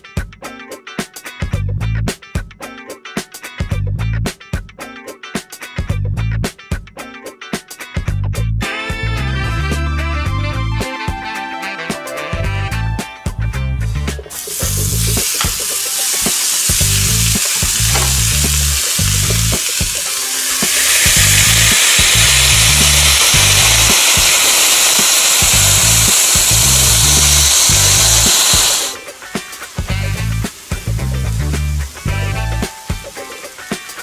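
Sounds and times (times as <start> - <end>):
berries sizzling in waffle iron: 14.3 - 34.0.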